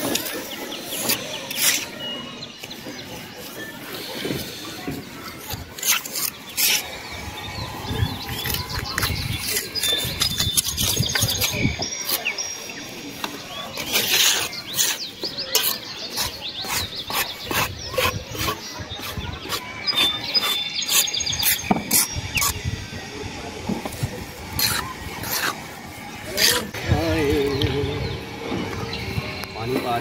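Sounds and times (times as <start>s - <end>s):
trowel scraping mortar and brick: 0.0s - 22.6s, 23.7s - 26.9s
small birds chirping: 0.0s - 30.0s.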